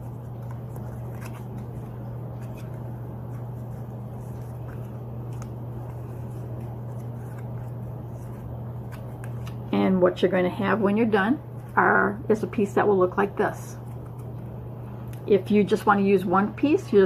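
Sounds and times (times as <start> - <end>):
paper creasing crackles: 0.0 - 9.7
steady low hum: 0.0 - 17.0.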